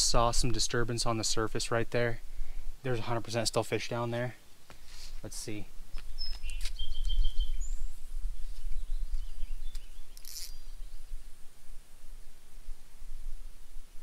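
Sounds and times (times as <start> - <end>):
bird chirps: 5.9 - 11.1.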